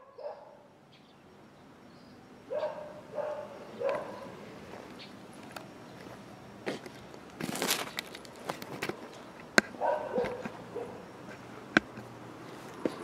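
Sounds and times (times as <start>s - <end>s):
dog barking: 0.0s - 0.7s, 2.5s - 4.4s, 9.8s - 11.1s.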